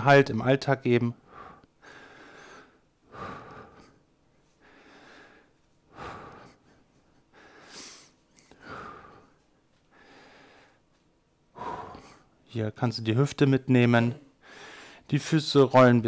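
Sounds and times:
man breathing in and out: 0:01.2 - 0:12.4, 0:14.3 - 0:15.1.

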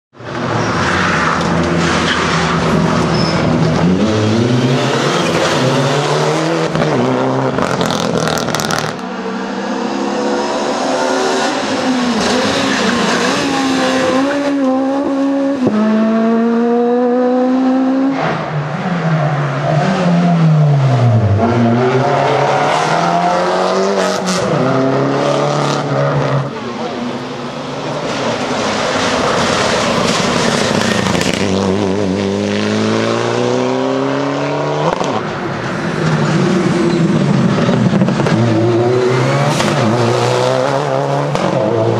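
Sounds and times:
rally cars at full throttle: 0:00.1 - 0:41.9.

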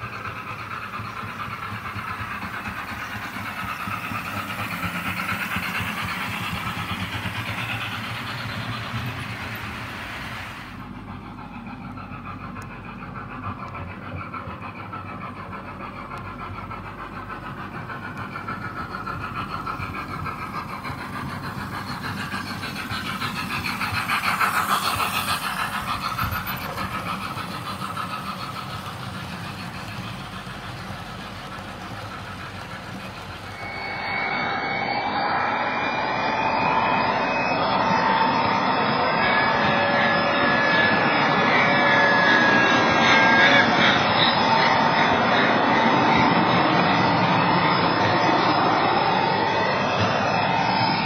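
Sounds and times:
model train wheels rumbling: 0:00.0 - 0:34.4
on-board train running whine: 0:00.0 - 0:51.0.

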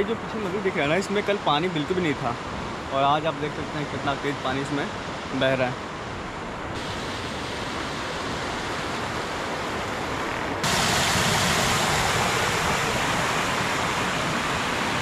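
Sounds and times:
river rushing: 0:00.0 - 0:15.0
water splashing onto stones: 0:10.6 - 0:15.0.

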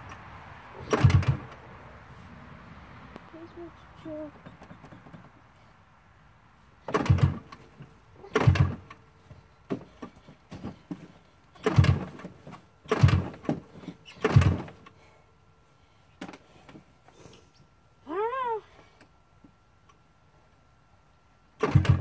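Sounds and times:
rope pull starter: 0:00.8 - 0:01.6, 0:06.8 - 0:09.0, 0:11.6 - 0:15.0, 0:21.6 - 0:22.0
two-stroke engine turning over: 0:00.8 - 0:01.6, 0:06.8 - 0:09.0, 0:11.6 - 0:14.8, 0:21.6 - 0:22.0.

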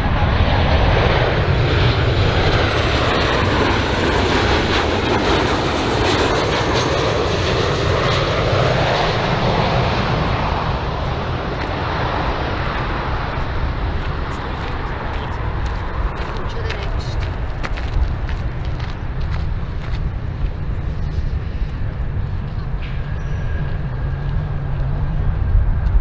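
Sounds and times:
jet airliner engines: 0:00.0 - 0:26.0.

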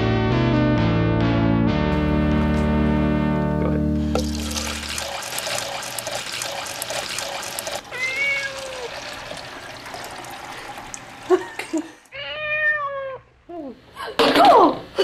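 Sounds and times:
tap running into sink: 0:03.6 - 0:07.8, 0:09.0 - 0:11.1
cat meowing: 0:07.9 - 0:08.9, 0:12.1 - 0:13.3.

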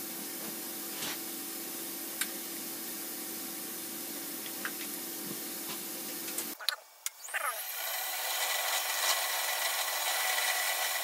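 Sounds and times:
machine hissing: 0:07.2 - 0:11.0.

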